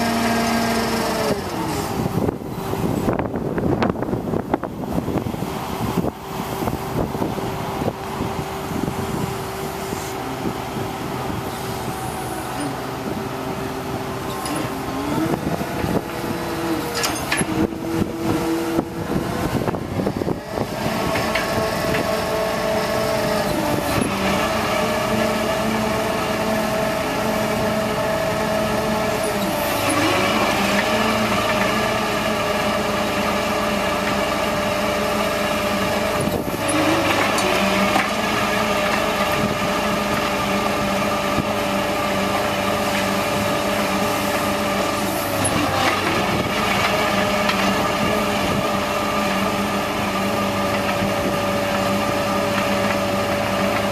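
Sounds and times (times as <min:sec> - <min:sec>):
diesel engine running: 0:00.0 - 0:53.9
hydraulic auger boring into ground: 0:00.0 - 0:53.9.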